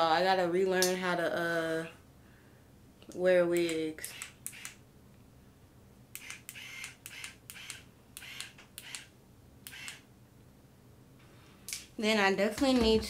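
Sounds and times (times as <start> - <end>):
curling iron whirring clicks: 3.6 - 4.8, 6.1 - 10.0.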